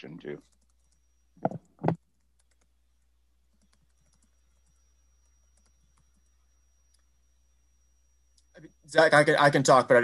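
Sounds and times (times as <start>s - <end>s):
keyboard typing: 0.4s - 2.8s, 3.5s - 7.1s.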